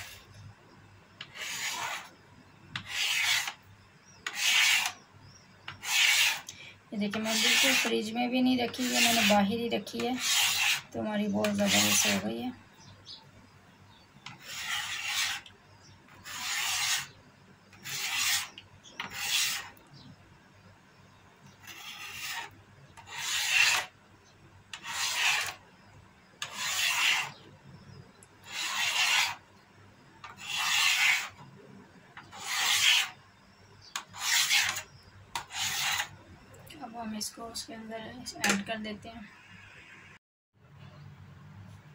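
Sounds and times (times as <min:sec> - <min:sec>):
knife scraping along metal pan: 0:01.2 - 0:02.1, 0:02.8 - 0:03.6, 0:04.2 - 0:05.0, 0:05.7 - 0:12.3, 0:14.2 - 0:15.5, 0:16.2 - 0:17.2, 0:17.8 - 0:19.8, 0:21.6 - 0:23.9, 0:24.7 - 0:25.6, 0:26.4 - 0:27.4, 0:28.4 - 0:29.4, 0:30.2 - 0:31.4, 0:32.2 - 0:33.2, 0:34.0 - 0:36.2.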